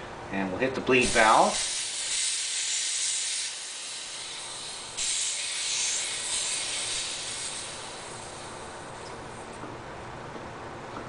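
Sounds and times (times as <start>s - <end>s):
high-pressure air hissing: 1.0s - 9.5s.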